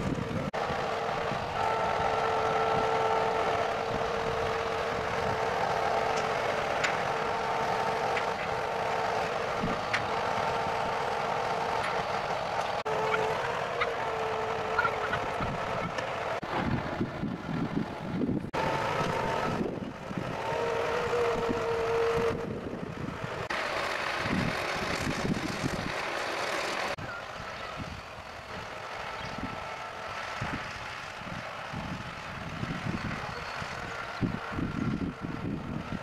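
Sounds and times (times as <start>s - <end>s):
wind buffeting microphone: 0.0s - 12.9s, 14.8s - 23.6s, 24.2s - 26.0s, 29.2s - 36.0s
crane engine and hydraulics: 0.0s - 36.0s.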